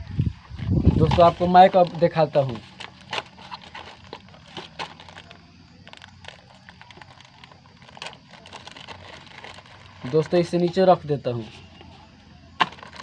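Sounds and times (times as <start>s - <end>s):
plastic packet crinkling: 1.1s - 10.5s, 12.6s - 13.0s.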